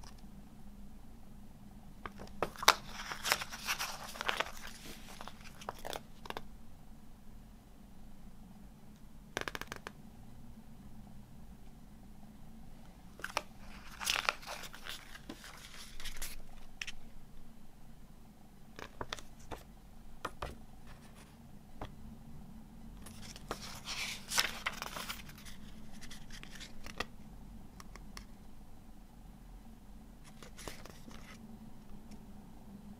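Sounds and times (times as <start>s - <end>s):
paper rustling and crinkling: 2.1s - 6.4s, 13.2s - 17.0s, 23.0s - 27.1s, 30.2s - 31.4s.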